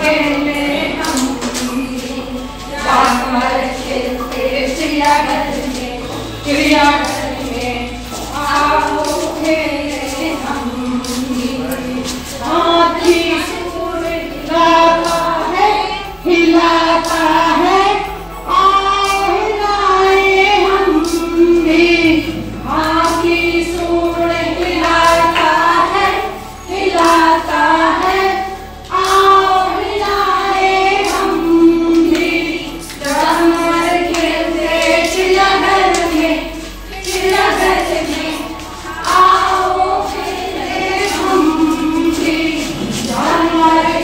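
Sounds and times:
women singing together: 0.0 - 44.0
hand claps: 0.8 - 2.2, 2.8 - 12.4.

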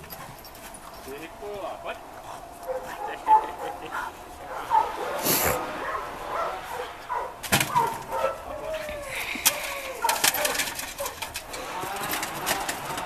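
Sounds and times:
dog yipping and whining: 4.5 - 9.1.

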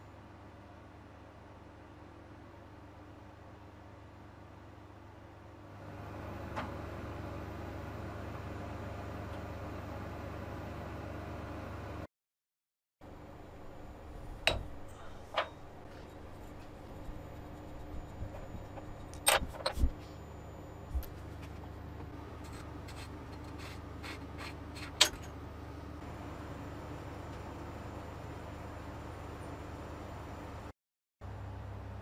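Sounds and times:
steady low hum: 13.0 - 30.7.

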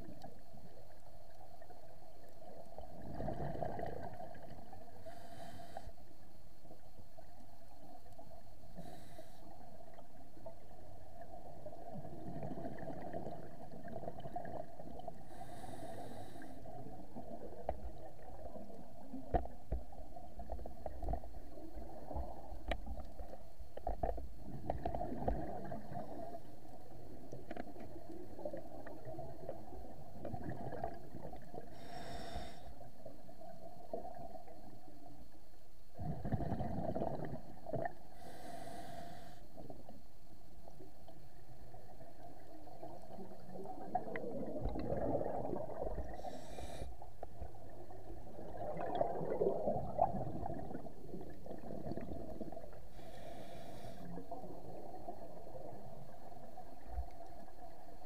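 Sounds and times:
diver's exhaled bubbles gurgling: 2.4 - 5.0, 10.5 - 15.2, 24.0 - 31.8, 36.0 - 38.0, 41.7 - 46.4, 47.4 - 52.9, 54.0 - 58.0
breath hissing through regulator: 15.3 - 16.7, 31.7 - 32.8, 38.2 - 39.4, 46.1 - 47.0, 52.9 - 54.2.

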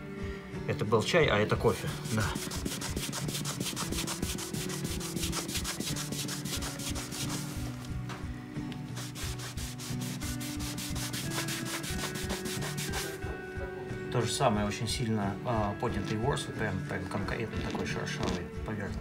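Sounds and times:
background music: 0.0 - 19.0
cloth rubbing on wooden floor: 2.0 - 8.0, 8.9 - 13.2.

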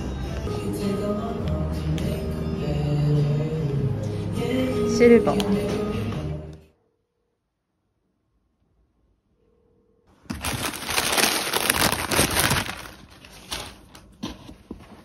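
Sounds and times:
paper wrapping crinkling: 10.2 - 15.0.

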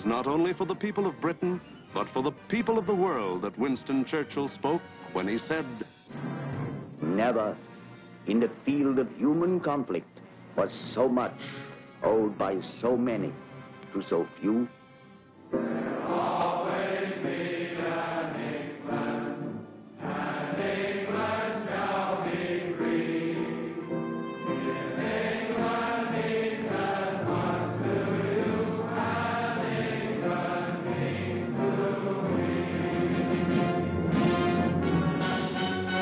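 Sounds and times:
orchestra: 0.0 - 36.0
choir singing sustained notes: 15.5 - 36.0.

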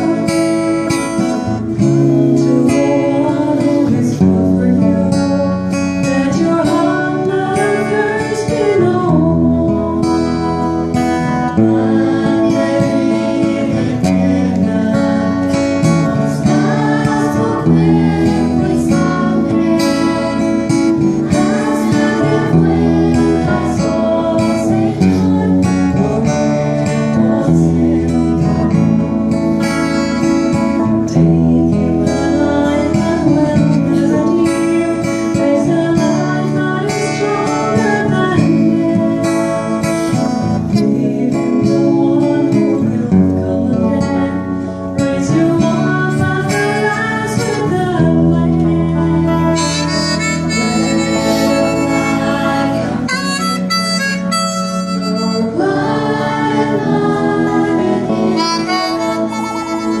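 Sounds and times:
strummed acoustic guitar: 0.0 - 60.0
woman singing a hymn: 0.0 - 60.0
harmonica melody: 49.2 - 56.6, 57.5 - 60.0.

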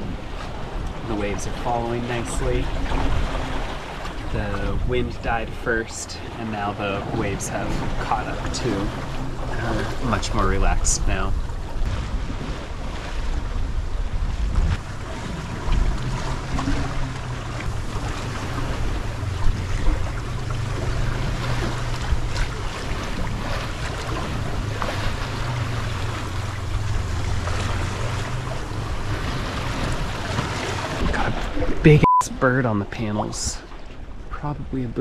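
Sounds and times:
steady low hum: 0.0 - 31.0
wind buffeting microphone: 0.0 - 31.9
water rushing along hull: 0.0 - 35.0.

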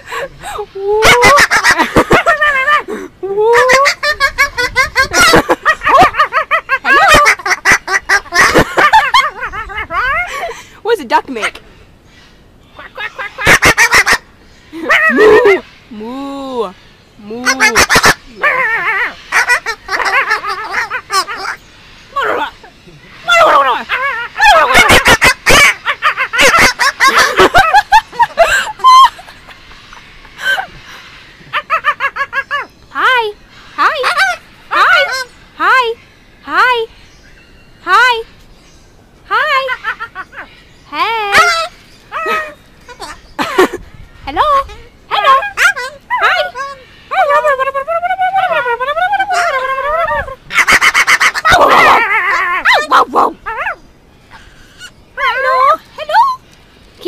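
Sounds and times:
high-pitched giggling: 0.0 - 10.6, 23.5 - 30.8, 41.3 - 53.8
parrot calling and chattering: 0.1 - 10.6, 12.7 - 16.1, 16.7 - 36.9, 39.2 - 57.0.

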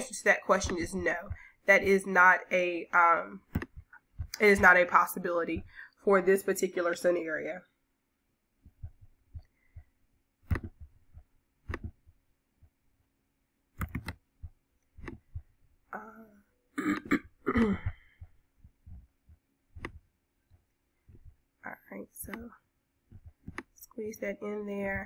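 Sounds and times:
mouse clicks: 3.5 - 4.4, 10.4 - 12.0, 13.8 - 14.2, 19.8 - 20.0, 22.2 - 22.5
person clearing throat: 16.8 - 18.0.

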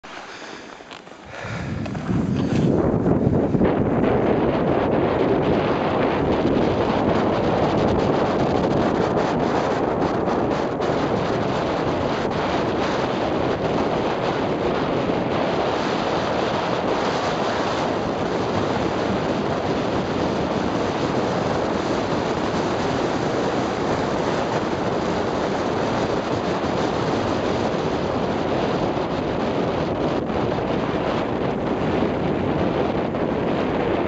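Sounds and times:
wind rush over microphone: 0.0 - 34.0.

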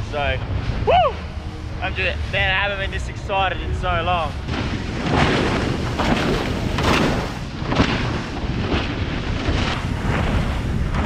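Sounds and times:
powerboat motor and wind rumble: 0.0 - 11.0
hull slamming into waves: 4.3 - 11.0.

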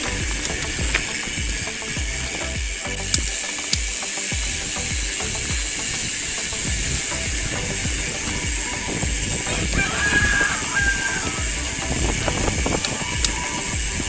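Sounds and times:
bike rattling: 0.0 - 14.0
bike tyres on gravel: 0.0 - 14.0
wind buffeting microphone: 6.6 - 14.0.

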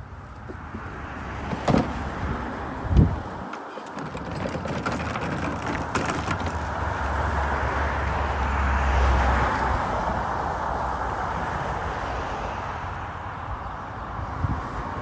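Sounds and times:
vehicle passing: 4.9 - 13.3.

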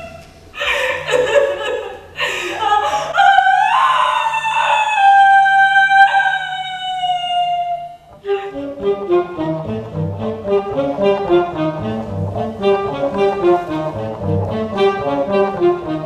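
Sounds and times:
harsh noisy cries: 2.6 - 8.1.

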